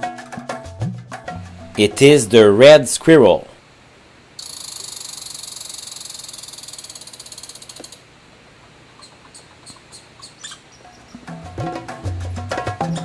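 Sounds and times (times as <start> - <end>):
squirrel rattle call: 4.4 - 8.1, 8.9 - 11.4.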